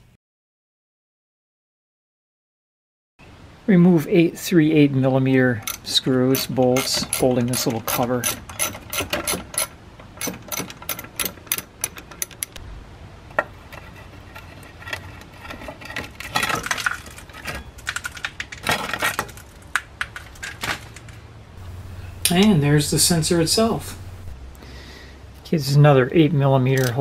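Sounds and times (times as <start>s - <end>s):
bolts and washers clinking: 5.5s - 12.6s, 13.3s - 21.2s, 26.7s - 27.0s
sheet metal scraping: 13.4s - 17.8s.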